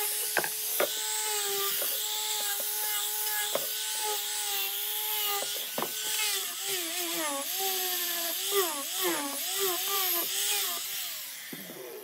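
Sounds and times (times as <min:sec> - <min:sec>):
angle grinder whining: 0:00.0 - 0:12.0
sanding pad knocking board edges: 0:05.4 - 0:06.2.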